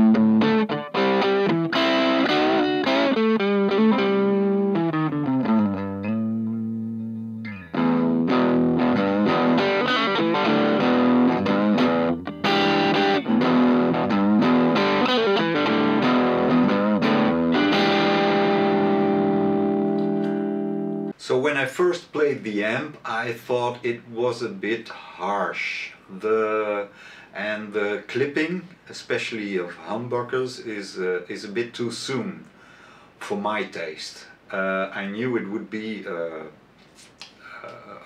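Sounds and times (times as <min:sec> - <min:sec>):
distorted electric guitar: 0:00.0 - 0:21.1.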